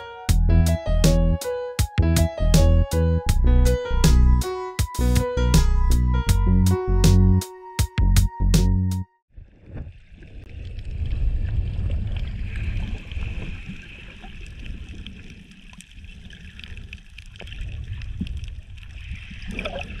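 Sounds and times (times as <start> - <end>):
underwater churning water: 9.3 - 20.0.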